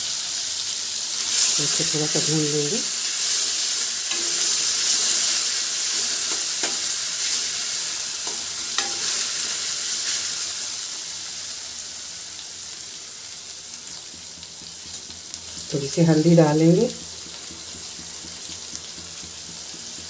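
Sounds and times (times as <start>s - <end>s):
food sizzling in hot oil: 0.0s - 20.0s
spoon scraping steel pan: 4.1s - 5.3s.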